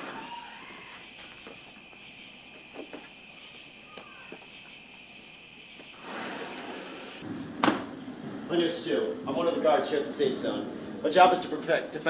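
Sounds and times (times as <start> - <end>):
crickets chirping: 0.0 - 7.3.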